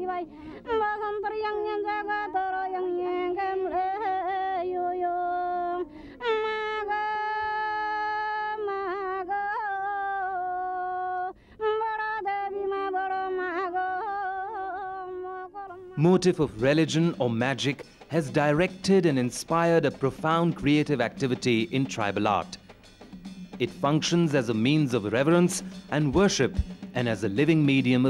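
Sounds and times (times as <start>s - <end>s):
woman singing unaccompanied: 0.0s - 16.0s.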